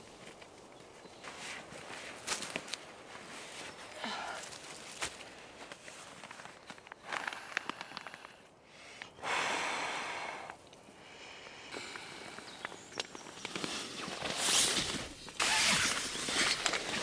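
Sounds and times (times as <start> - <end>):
nylon mat crinkling: 13.1 - 17.0.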